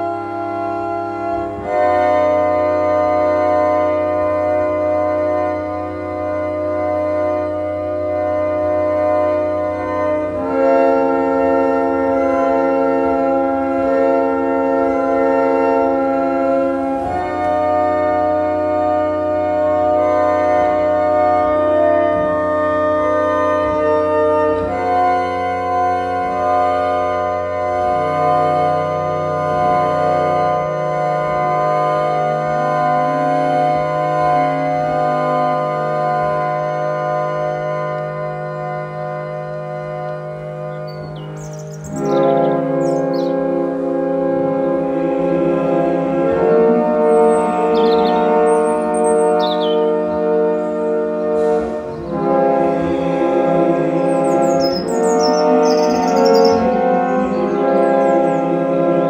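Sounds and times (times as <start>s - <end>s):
organ playing sustained chords: 0.0s - 59.0s.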